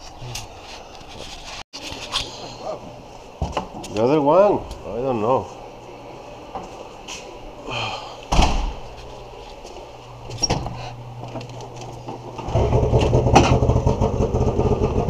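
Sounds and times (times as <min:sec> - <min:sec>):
snowmobile engine running: 0:12.5 - 0:15.0.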